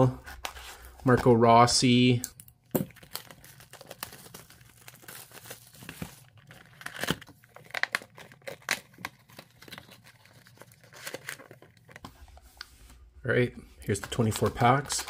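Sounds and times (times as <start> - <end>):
shrink wrap crinkling and tearing: 2.7 - 12.0, 13.8 - 15.0.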